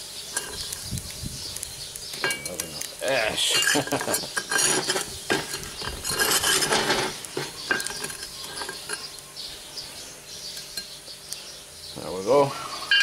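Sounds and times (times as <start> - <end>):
metal scraper scraping ash: 0.3 - 1.0, 2.0 - 9.2.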